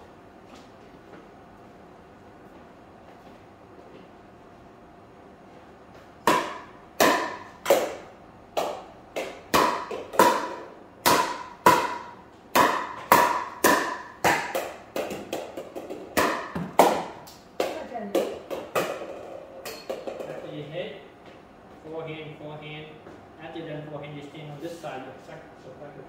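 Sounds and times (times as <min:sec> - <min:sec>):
paddles striking plastic ball: 0:08.6 - 0:19.3.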